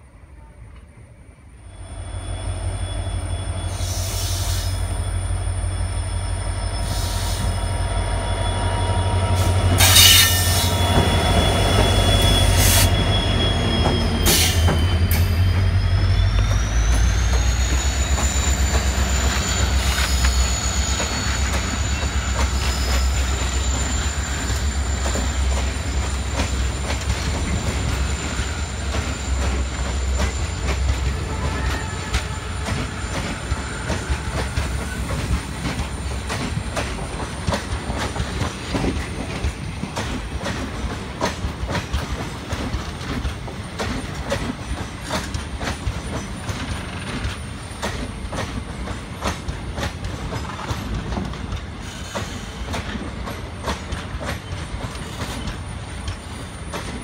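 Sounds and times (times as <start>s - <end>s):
train rumbling past: 0.0s - 57.0s
high wheel squeal: 1.6s - 39.1s.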